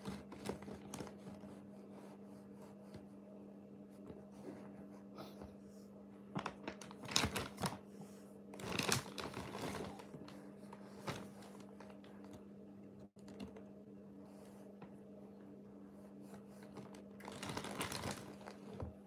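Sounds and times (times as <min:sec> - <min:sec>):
plastic bag crinkling: 0:08.6 - 0:10.1, 0:16.8 - 0:18.7.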